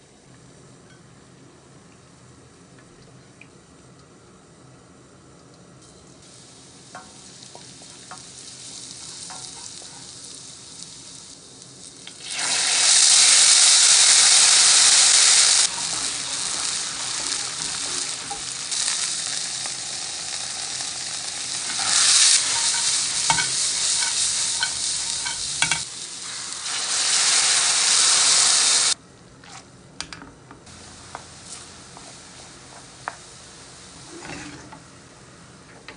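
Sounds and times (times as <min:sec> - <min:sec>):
oil sizzling in a frying pan: 0:05.8 - 0:29.0, 0:30.7 - 0:35.3
loud hissing of water in hot oil: 0:06.2 - 0:29.0, 0:30.7 - 0:34.7.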